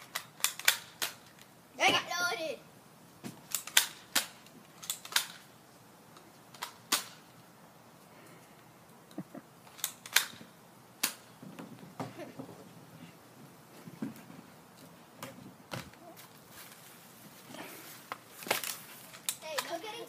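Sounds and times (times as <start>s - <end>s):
toy blasters snapping and clicking: 0.0s - 1.5s, 3.5s - 5.5s, 6.5s - 7.2s, 9.7s - 10.4s, 11.0s - 11.3s, 18.5s - 19.8s.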